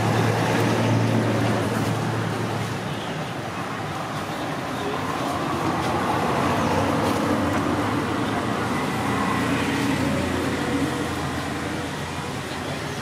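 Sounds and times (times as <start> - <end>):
traffic rumble: 0.0 - 13.0
vehicle engine humming: 3.9 - 13.0.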